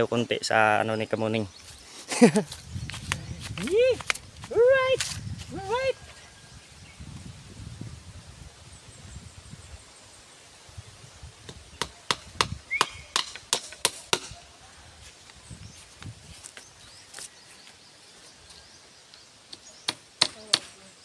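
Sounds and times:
tool striking bamboo: 0:11.5 - 0:14.4, 0:19.5 - 0:20.7.

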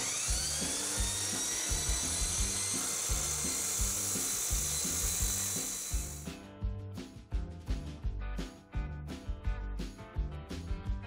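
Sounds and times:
chop saw grinding steel: 0:00.0 - 0:06.2.

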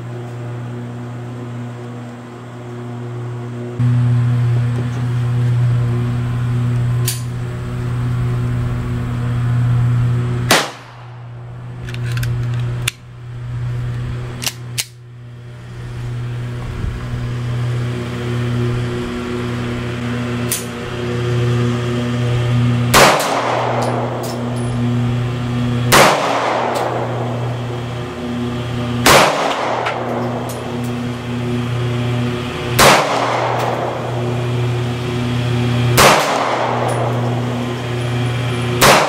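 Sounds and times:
steady low hum: 0:00.0 - 0:39.0
gunshot cracks: 0:10.5 - 0:11.2, 0:22.9 - 0:24.2, 0:25.9 - 0:27.1, 0:29.0 - 0:30.1, 0:32.8 - 0:33.8, 0:36.0 - 0:37.1, 0:38.8 - 0:39.0
pistol handling clicks: 0:11.8 - 0:13.0, 0:14.4 - 0:15.0.

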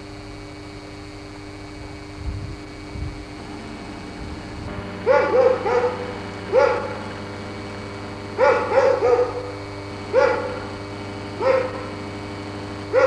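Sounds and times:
steady low hum: 0:00.0 - 0:13.0
dog barking: 0:05.0 - 0:12.1.

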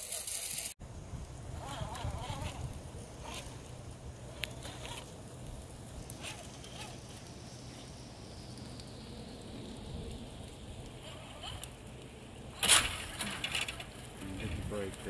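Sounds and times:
electric motor whine: 0:01.4 - 0:05.2.

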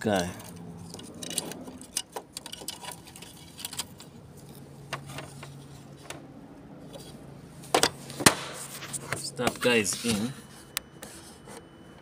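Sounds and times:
faint steady hum: 0:00.0 - 0:12.0
plastic parts clicking and tapping: 0:00.4 - 0:04.1.

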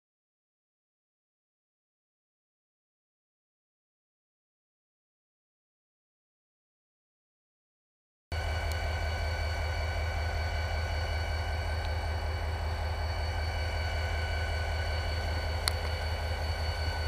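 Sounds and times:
diesel locomotive rumble: 0:08.3 - 0:17.0
steady whining tones: 0:08.3 - 0:17.0.

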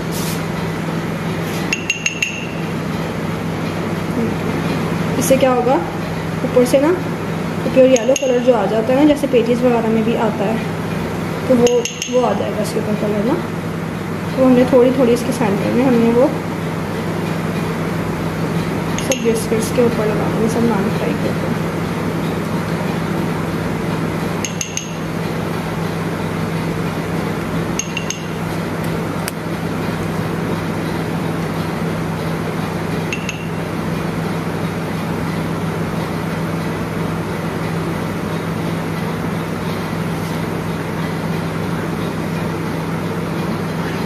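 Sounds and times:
steady background hum: 0:00.0 - 0:44.0
utensil clinking against bowl: 0:01.7 - 0:02.6, 0:07.9 - 0:08.5, 0:11.6 - 0:12.4, 0:19.0 - 0:19.4, 0:24.4 - 0:25.0, 0:27.8 - 0:28.4.

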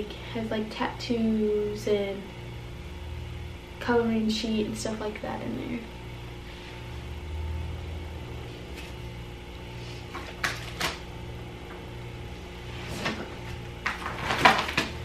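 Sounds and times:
steady low hum: 0:00.0 - 0:15.0
plastic packaging clicks and rustles: 0:10.2 - 0:11.0, 0:13.8 - 0:15.0.

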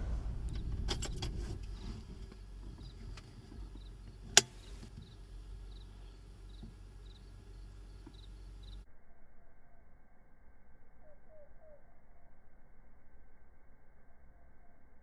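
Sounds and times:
low steady rumble: 0:00.0 - 0:10.7.

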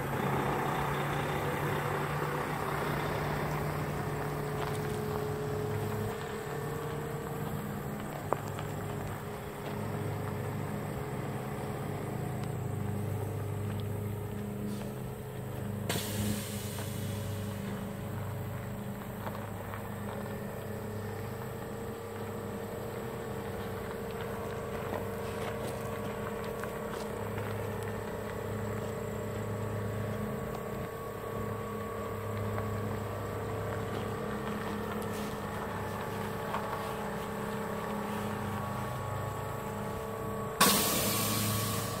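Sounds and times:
truck engine running at low revs: 0:00.0 - 0:42.0
air hiss: 0:15.9 - 0:17.6, 0:40.6 - 0:42.0.

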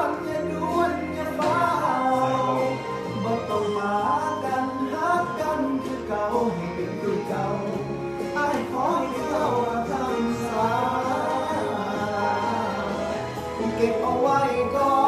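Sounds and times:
backing music: 0:00.0 - 0:15.0
man singing: 0:00.0 - 0:15.0.

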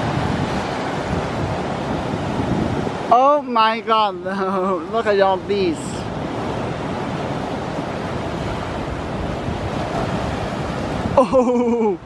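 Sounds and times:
ocean surf breaking: 0:00.0 - 0:12.0
person exclaiming: 0:11.2 - 0:12.0.

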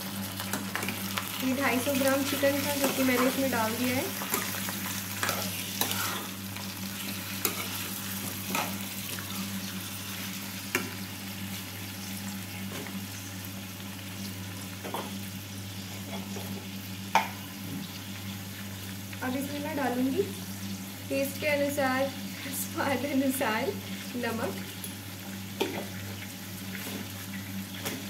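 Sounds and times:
chicken sizzling in a pan: 0:00.0 - 0:28.0
metal spatula scraping pan: 0:05.2 - 0:06.3.

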